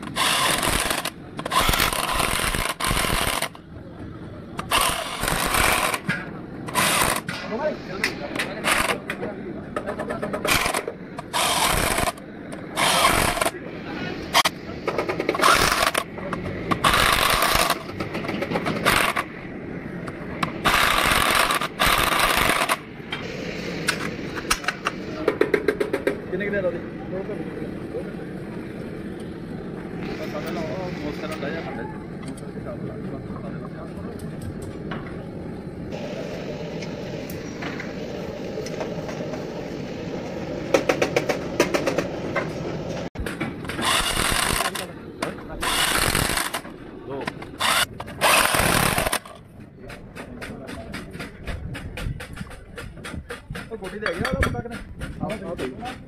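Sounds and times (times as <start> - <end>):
steady background rumble: 0.0 - 56.0
harsh hissing scraping tool bursts: 12.8 - 13.5.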